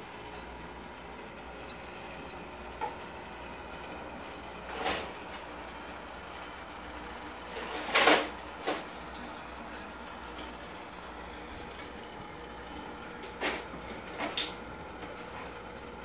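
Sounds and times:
aquarium pumps humming: 0.0s - 16.0s.

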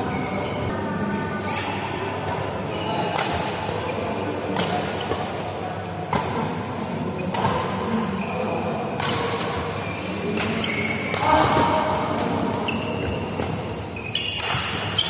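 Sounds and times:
rackets hitting shuttlecock: 2.3s - 6.6s, 7.2s - 8.0s, 8.9s - 15.0s.

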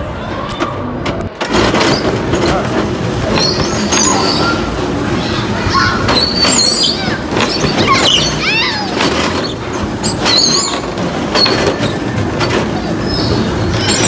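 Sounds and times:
child squealing: 5.3s - 9.0s.

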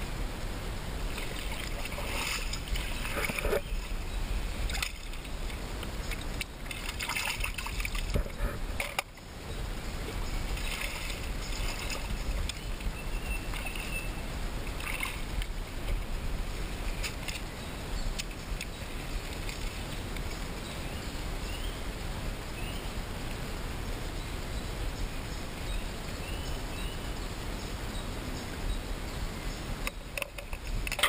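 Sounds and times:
steady low rumble: 0.0s - 29.8s
hands splashing in water: 6.7s - 8.1s.

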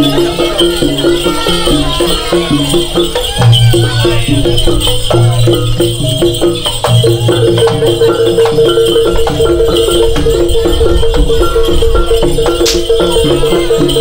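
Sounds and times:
percussion strikes: 0.0s - 14.0s.

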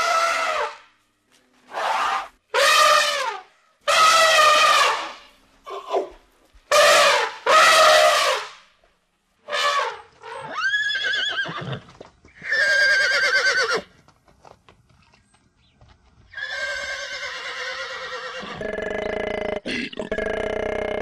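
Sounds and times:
elephant trumpeting: 1.7s - 6.1s, 6.7s - 8.5s
horses whinnying: 10.2s - 13.9s, 16.3s - 21.0s.

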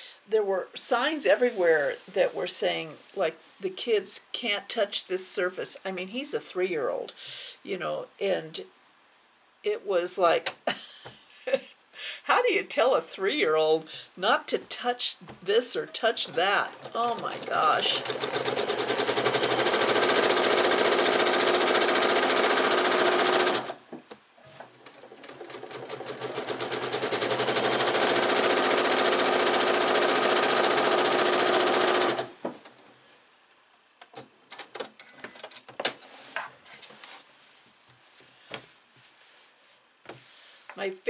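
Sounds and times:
sewing machine stitching: 15.6s - 23.8s, 24.4s - 32.4s
fabric rustling: 36.0s - 40.7s.

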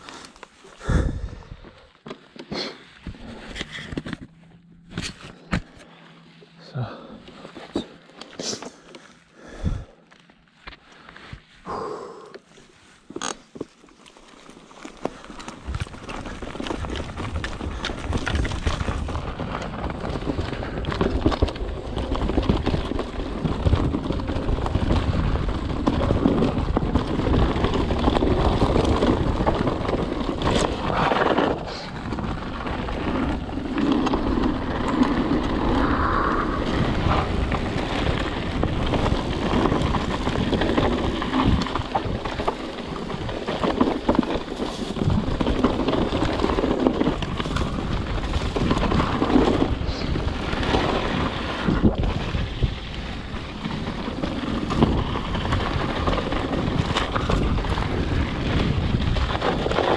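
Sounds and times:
tyres on dirt and gravel: 0.0s - 59.9s
bike rattles and knocks: 13.1s - 35.8s, 36.6s - 59.9s
wind on microphone: 35.4s - 42.3s.

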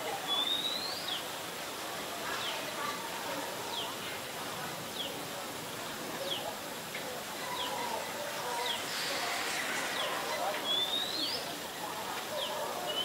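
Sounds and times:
faint lower bird calls: 8.6s - 11.5s.

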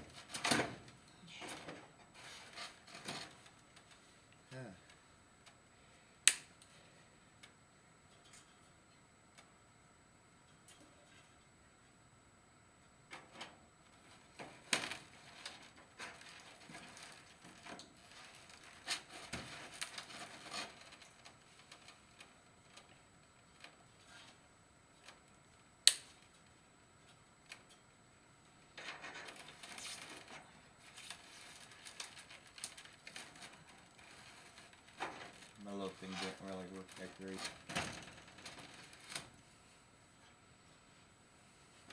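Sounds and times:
sharp snap: 6.3s - 6.5s, 25.9s - 26.1s
rustling: 14.0s - 22.9s, 28.8s - 40.9s
wire mesh rattling and scraping: 14.0s - 22.9s, 28.8s - 39.4s.

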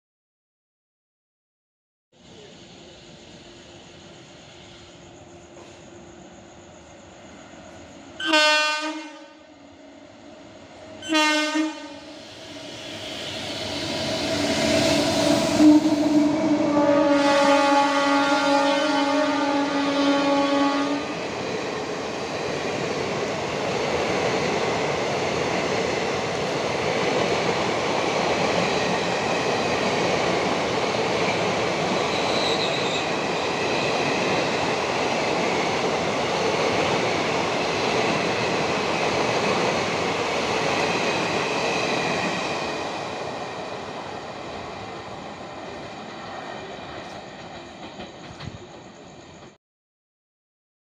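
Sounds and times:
train wheels rushing on rails: 2.2s - 49.6s
locomotive horn: 8.2s - 9.4s, 11.0s - 12.1s, 15.5s - 21.1s.

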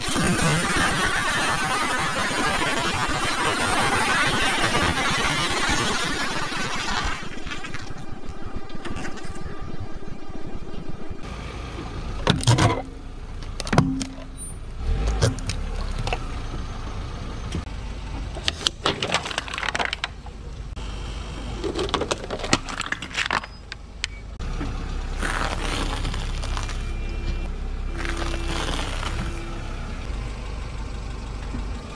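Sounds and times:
low engine rumble: 0.0s - 18.6s, 19.5s - 31.9s
objects cracking and crunching: 18.5s - 20.3s, 21.6s - 23.8s, 25.2s - 26.9s, 28.0s - 29.4s.

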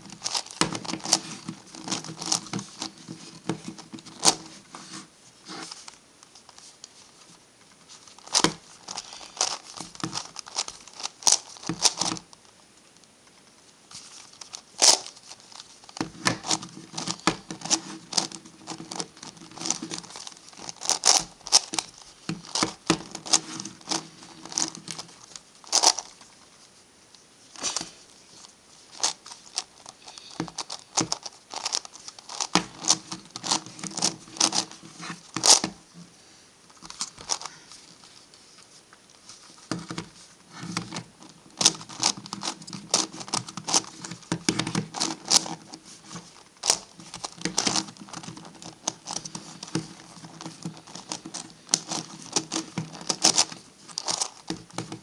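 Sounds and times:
plastic puzzle clicking: 0.2s - 4.4s, 14.4s - 26.1s, 29.0s - 34.8s, 36.8s - 37.5s, 46.6s - 55.0s.

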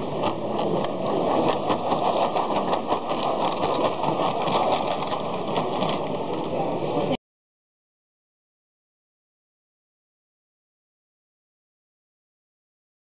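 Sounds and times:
model tram motor whirring: 0.0s - 7.2s
quick clicks of tram on track: 0.0s - 7.2s.

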